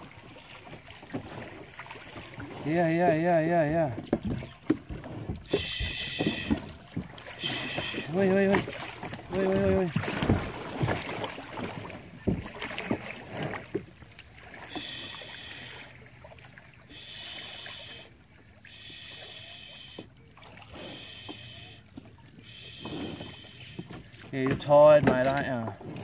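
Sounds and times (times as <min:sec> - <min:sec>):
paddle knocking plastic hull: 0:00.0 - 0:15.0, 0:22.8 - 0:26.0
paddle strokes in water: 0:00.0 - 0:26.0
high buzzing call: 0:05.5 - 0:06.7, 0:07.3 - 0:08.9, 0:14.5 - 0:16.1, 0:16.8 - 0:20.1.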